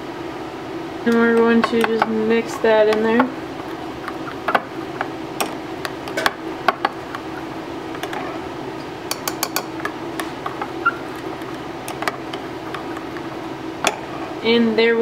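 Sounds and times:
spoon tapping: 0:09.1 - 0:13.3.

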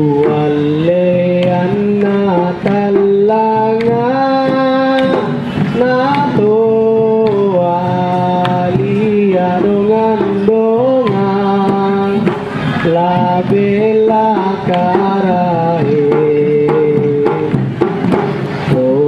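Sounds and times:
drum strokes: 0:00.0 - 0:19.0
sliding sung melody: 0:00.0 - 0:19.0.

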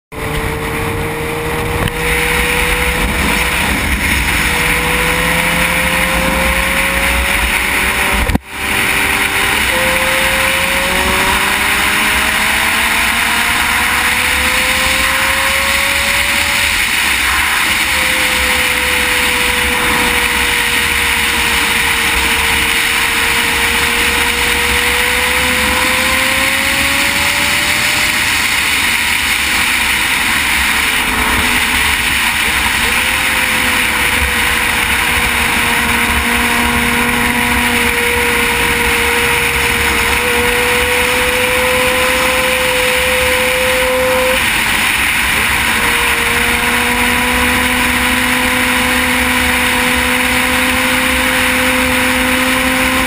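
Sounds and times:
motorcycle engine cruising: 0:00.1 - 0:53.0
wind rush: 0:00.2 - 0:52.9.

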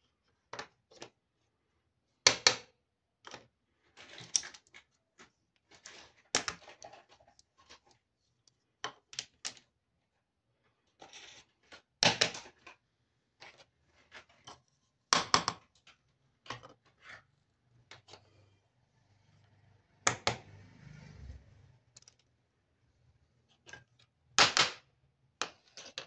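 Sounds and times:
plastic toy pieces clattering: 0:03.4 - 0:04.9.

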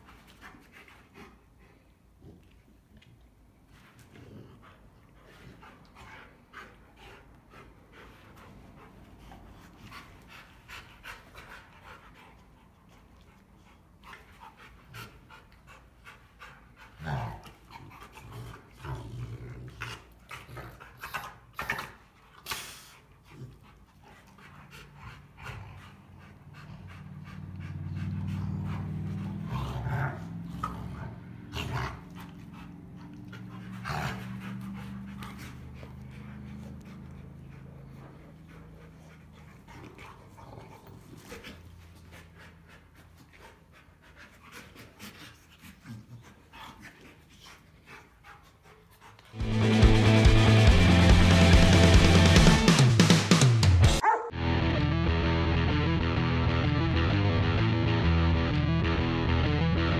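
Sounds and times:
dogs panting heavily: 0:00.0 - 0:02.2, 0:03.6 - 0:19.0, 0:19.8 - 0:52.8
dog play growl: 0:03.7 - 0:48.2.

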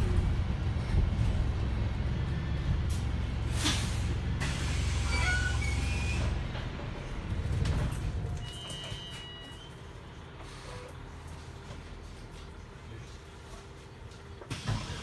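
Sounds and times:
bus diesel engine idling: 0:00.0 - 0:15.0
air brakes hissing: 0:03.5 - 0:06.4.

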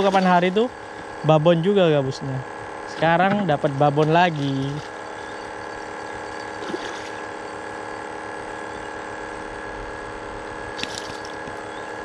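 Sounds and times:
water splashing: 0:00.0 - 0:01.2, 0:03.8 - 0:07.4, 0:10.8 - 0:11.6.

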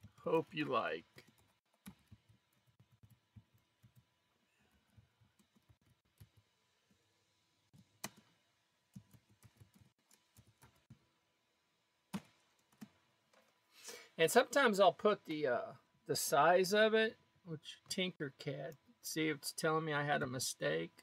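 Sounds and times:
computer keyboard typing: 0:01.2 - 0:04.1, 0:04.9 - 0:06.4, 0:07.8 - 0:11.0.

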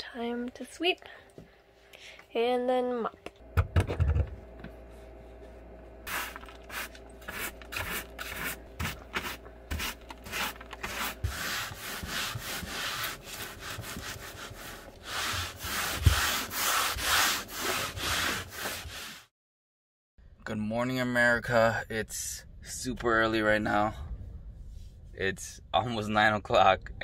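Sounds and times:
broom sweeping a floor: 0:06.1 - 0:19.3.

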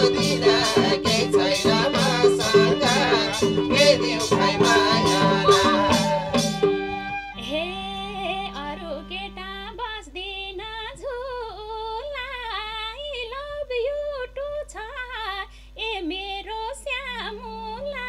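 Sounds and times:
women singing together: 0:00.0 - 0:06.8.

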